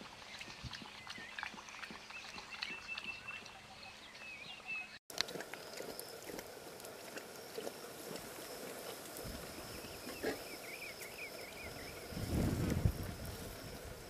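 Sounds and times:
lions lapping water: 0.0s - 4.3s, 5.1s - 14.0s
insect hum: 5.1s - 14.0s
faint chirping: 9.3s - 14.0s.

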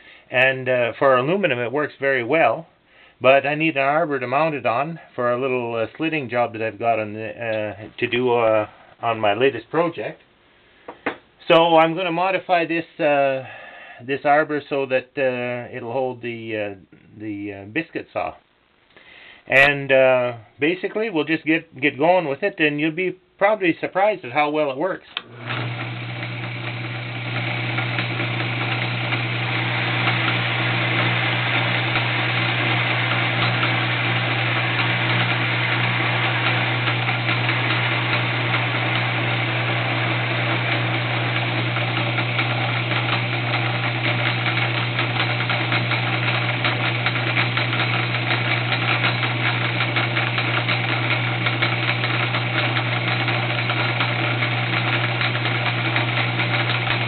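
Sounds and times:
machine motor hum: 25.2s - 57.0s
metal cutting noise: 25.2s - 57.0s.

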